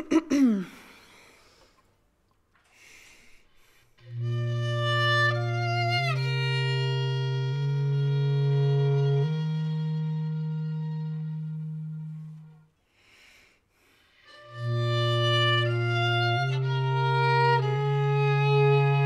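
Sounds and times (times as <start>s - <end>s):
faint breathy noise: 0.4s - 2.0s, 2.6s - 4.0s, 12.8s - 14.4s
violin sliding tones: 4.0s - 12.6s, 14.3s - 19.0s
bass clarinet low notes: 4.0s - 12.8s, 14.3s - 19.0s.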